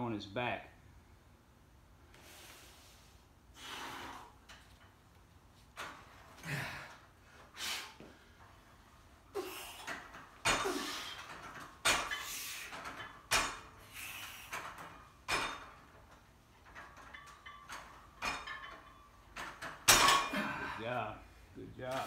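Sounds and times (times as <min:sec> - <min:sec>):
man breathing hard and grunting: 0:06.4 - 0:08.1, 0:20.3 - 0:21.1
metallic clanks of weight plates: 0:09.8 - 0:20.6.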